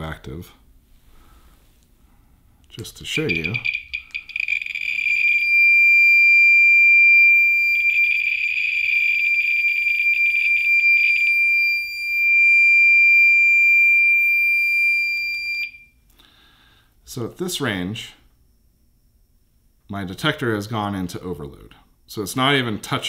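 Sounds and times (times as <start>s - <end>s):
radiation detector clicks: 3.1s - 5.8s
high-pitched alarm tone: 3.1s - 15.9s.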